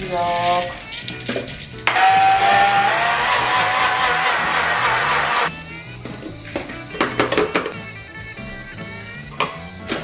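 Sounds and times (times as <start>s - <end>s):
blender whirring: 2.0s - 5.5s.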